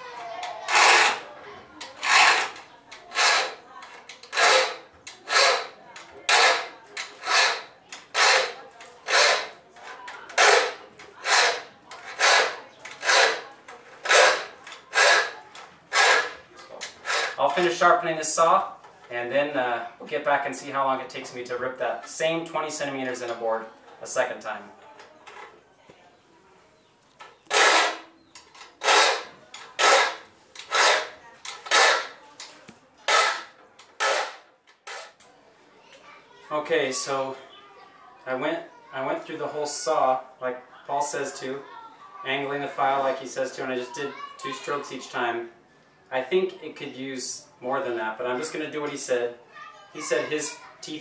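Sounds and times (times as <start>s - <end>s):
file rasping on saw teeth: 0.7s - 1.3s, 1.9s - 3.6s, 4.2s - 9.6s, 10.4s - 17.4s, 27.5s - 28.1s, 28.8s - 32.2s, 33.1s - 35.2s.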